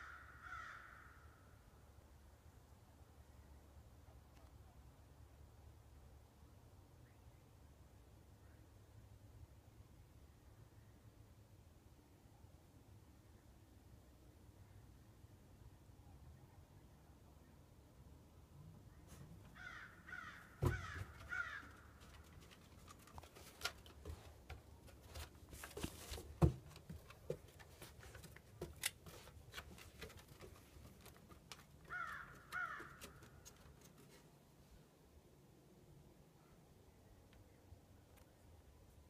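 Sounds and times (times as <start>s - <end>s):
footsteps on wooden deck: 20.6s - 34.0s.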